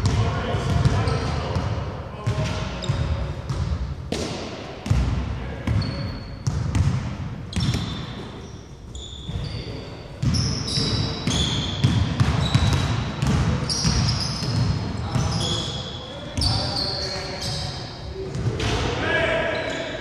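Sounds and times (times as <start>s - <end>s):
sneakers squeaking on floor: 0.0s - 1.6s, 2.2s - 5.0s, 5.6s - 18.7s, 19.4s - 20.0s
basketball bouncing on wooden court: 0.0s - 8.1s, 10.2s - 15.6s.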